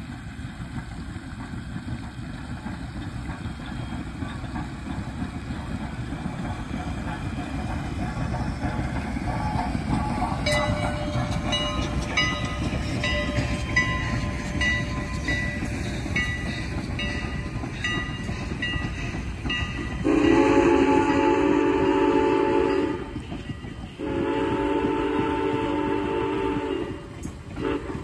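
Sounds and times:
train coaches rumbling past: 0:00.0 - 0:28.0
steam locomotive whistle: 0:20.0 - 0:28.0.

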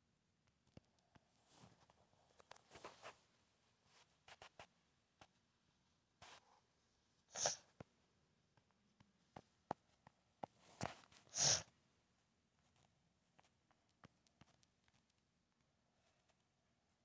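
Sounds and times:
person sneezing: 0:07.3 - 0:07.7, 0:11.3 - 0:11.7.

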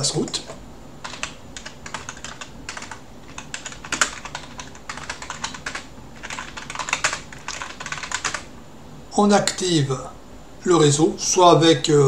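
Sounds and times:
typing on computer keyboard: 0:01.0 - 0:08.5.

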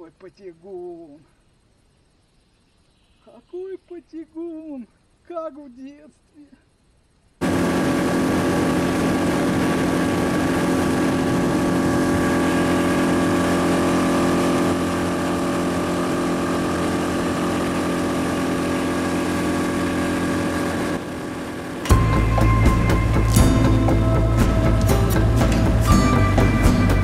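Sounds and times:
outboard motor running: 0:07.4 - 0:27.0.

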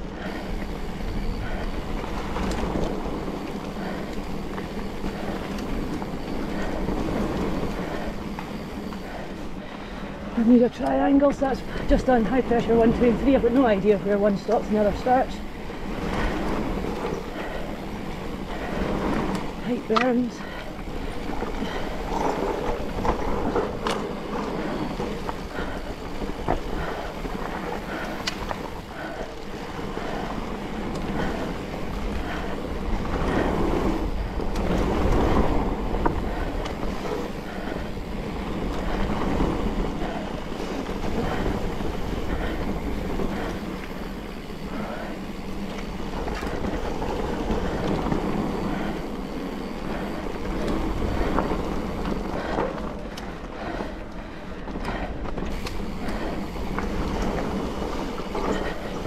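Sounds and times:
bike rattling and clicking: 0:00.0 - 0:59.0
tyres rumbling over dirt: 0:00.0 - 0:59.0
wind buffeting microphone: 0:00.0 - 0:59.0.

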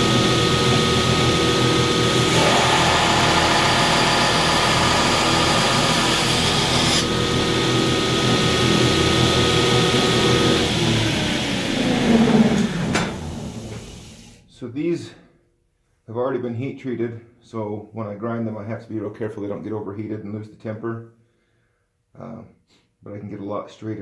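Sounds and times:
belt grinder grinding steel: 0:00.0 - 0:10.9
motor and belt hum: 0:00.0 - 0:14.0.

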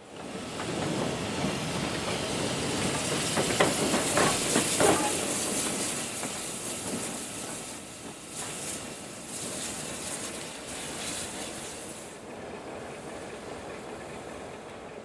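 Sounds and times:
locomotive chuffs and clanks: 0:00.0 - 0:15.0
steam hissing: 0:00.1 - 0:14.7.

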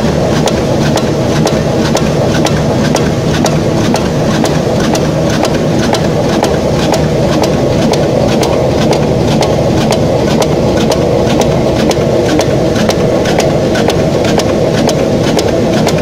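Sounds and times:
metalworking machine rumbling: 0:00.0 - 0:16.0
regular mechanical ticking: 0:00.0 - 0:16.0.

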